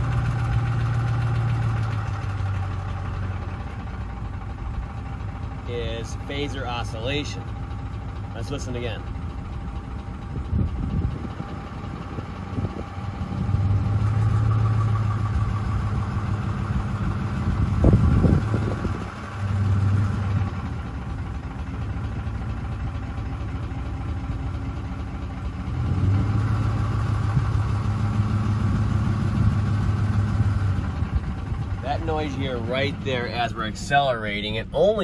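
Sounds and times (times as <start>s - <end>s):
engine clatter: 0.0s - 35.0s
truck engine droning: 0.0s - 35.0s.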